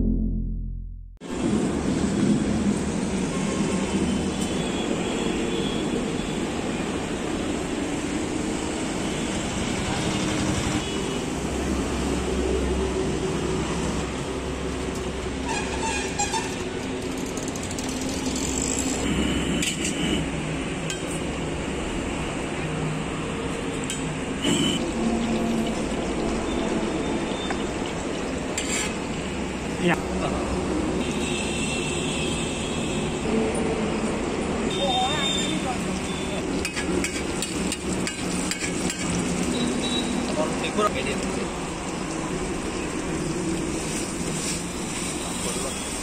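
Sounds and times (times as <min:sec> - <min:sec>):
low rumble: 0:00.0 - 0:01.2
eggs sizzling on a griddle: 0:25.1 - 0:29.6, 0:35.8 - 0:46.0.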